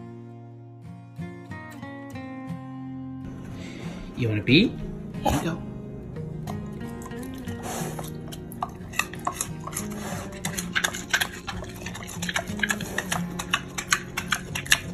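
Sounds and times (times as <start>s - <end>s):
background music: 0.0s - 14.9s
pig chewing and smacking: 6.4s - 14.9s.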